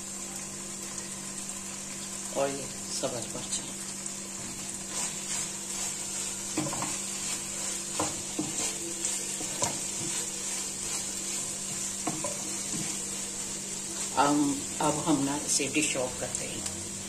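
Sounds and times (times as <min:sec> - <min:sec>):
vegetables sizzling in oil: 0:00.0 - 0:17.0
wooden spatula scraping pan: 0:04.4 - 0:15.3.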